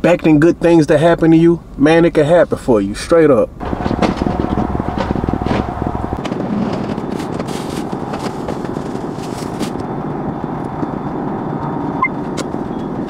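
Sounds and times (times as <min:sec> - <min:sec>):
plastic bags rustling: 0:06.7 - 0:09.8.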